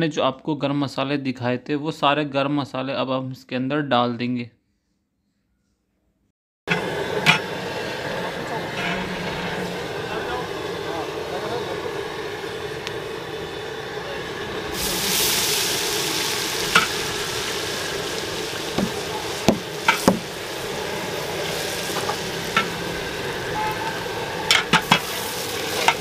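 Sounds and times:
metal ladle scraping a pot: 6.7 - 7.5, 8.6 - 10.0, 21.8 - 26.0
onions sizzling in oil: 6.7 - 26.0.

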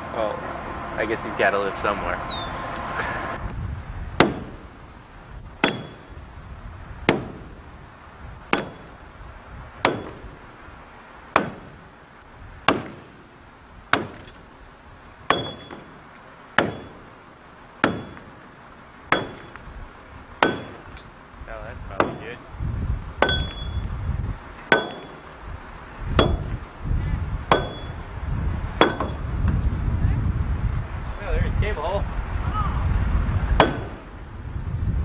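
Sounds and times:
metal tool striking concrete: 4.2 - 4.6, 5.6 - 6.1, 8.5 - 9.0, 9.8 - 10.4, 11.4 - 11.8, 15.3 - 15.9, 16.6 - 17.1, 17.8 - 18.4, 19.1 - 19.6, 20.4 - 21.1, 23.2 - 23.8, 24.7 - 25.3, 26.2 - 26.6, 27.5 - 28.0, 28.8 - 29.3, 33.6 - 34.2.

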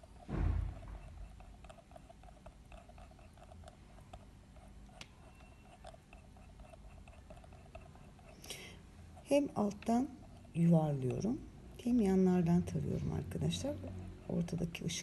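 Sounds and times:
pyrography pen scratching wood: 0.0 - 8.4.

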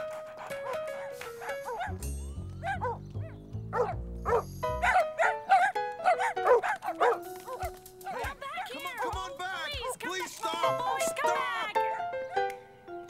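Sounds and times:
background music: 0.0 - 13.0
cartoon dogs barking: 0.1 - 2.0, 2.6 - 9.3.

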